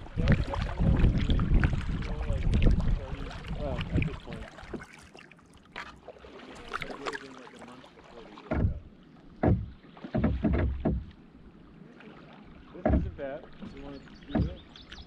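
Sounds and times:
kayak paddle splashing in water: 0:00.0 - 0:15.0
water dripping: 0:12.7 - 0:15.0.

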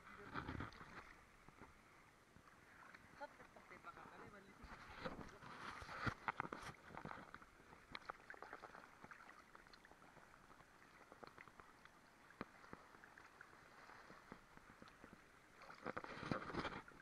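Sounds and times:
water lapping and gurgling: 0:00.0 - 0:17.0.

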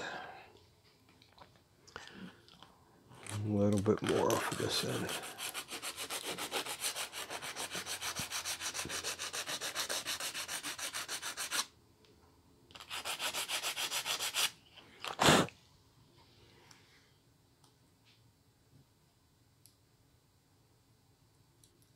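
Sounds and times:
shim rubbing on sandpaper: 0:04.0 - 0:11.7, 0:12.8 - 0:14.6.

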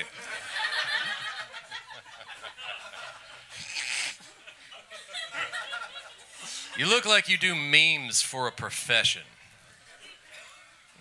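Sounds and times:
audience laughing: 0:00.0 - 0:06.8.

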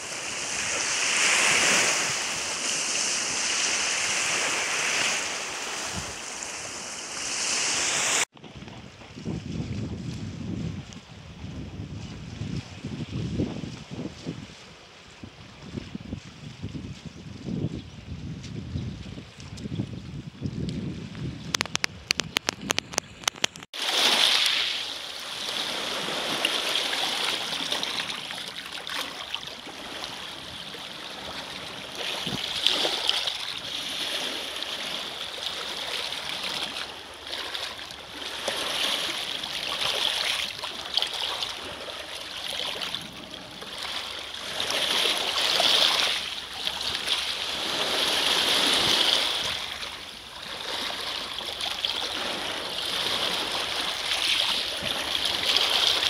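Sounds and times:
waves washing over pebbles: 0:00.0 - 0:08.3, 0:21.5 - 0:56.0.

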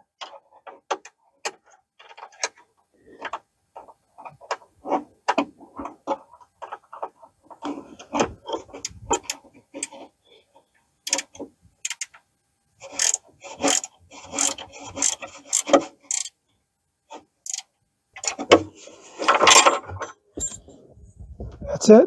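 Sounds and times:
hand wrench ratcheting: 0:11.0 - 0:12.2, 0:12.9 - 0:16.4, 0:17.4 - 0:18.3.

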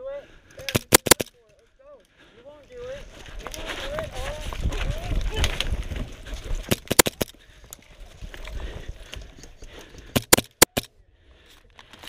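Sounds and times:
airsoft gunshots: 0:00.7 - 0:01.3.

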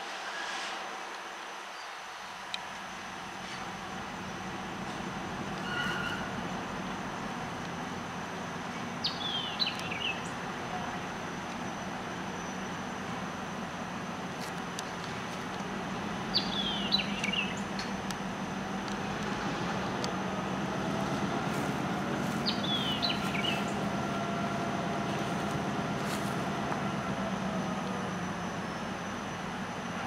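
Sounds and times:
diesel locomotive engine droning: 0:00.0 - 0:30.0
bird chirping: 0:09.0 - 0:10.4, 0:16.3 - 0:18.0, 0:21.6 - 0:25.6.

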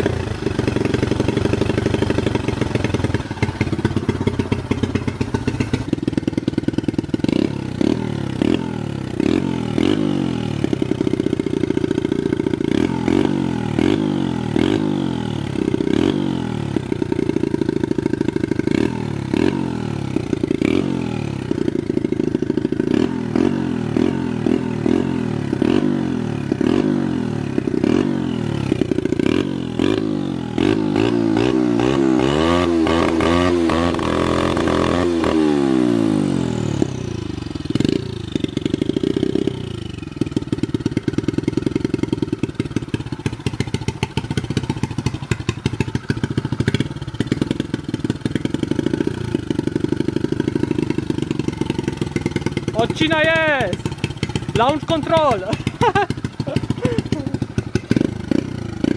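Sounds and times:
motorbike engine revving: 0:00.0 - 0:58.9
rev limiter stutter: 0:50.7 - 0:58.9.

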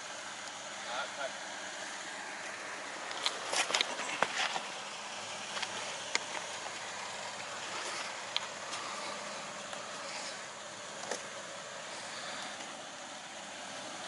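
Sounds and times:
truck engine crawling low: 0:00.0 - 0:14.0
sharp clicks and crunches: 0:03.0 - 0:04.8, 0:05.4 - 0:09.0.

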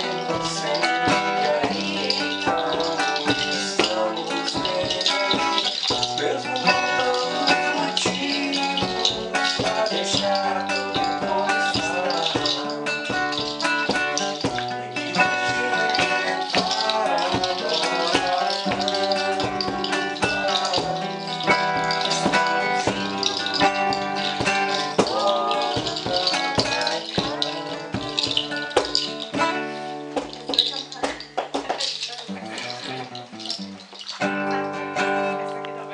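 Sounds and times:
woman singing: 0:00.0 - 0:29.0, 0:30.2 - 0:32.8
shaker rattling: 0:00.0 - 0:35.2
acoustic guitar: 0:00.0 - 0:35.9.

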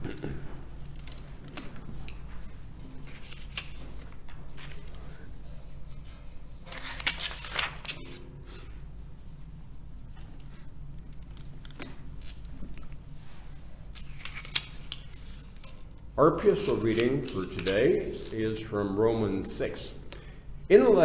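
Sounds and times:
steady low hum: 0:00.0 - 0:21.0
paper rustling: 0:00.8 - 0:08.3, 0:10.3 - 0:18.7.

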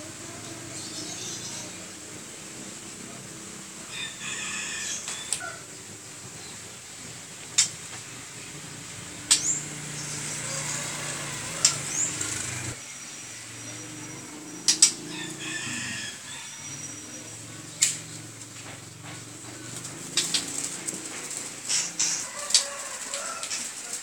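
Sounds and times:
bird clicking calls: 0:03.9 - 0:06.6, 0:07.4 - 0:08.1, 0:09.1 - 0:12.7, 0:14.5 - 0:24.0.

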